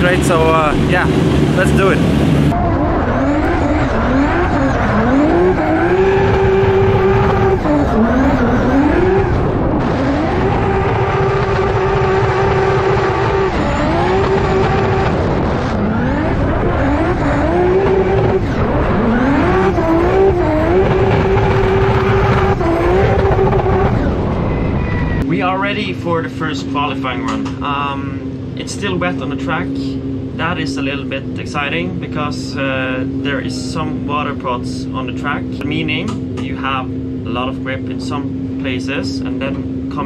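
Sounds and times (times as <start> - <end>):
car engine at high revs: 0.0 - 25.3.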